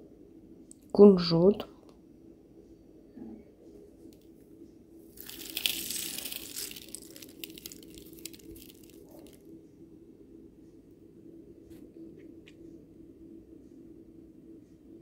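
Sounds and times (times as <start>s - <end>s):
seeds pattering onto salad: 5.1s - 9.5s.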